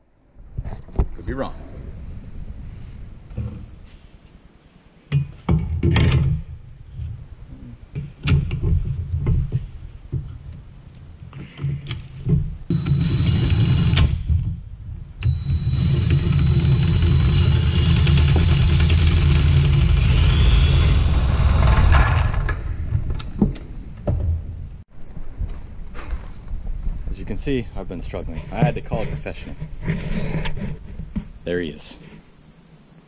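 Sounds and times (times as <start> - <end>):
impact driver running on bolts: 12.7 - 14.2, 15.3 - 22.6.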